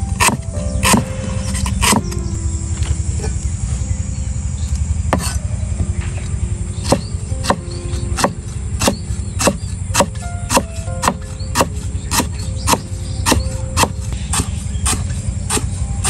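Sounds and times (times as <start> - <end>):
steady low rumble: 0.0 - 16.0
cleaver chopping on wooden block: 0.2 - 2.1, 5.2 - 5.4, 6.8 - 7.6, 8.2 - 15.7.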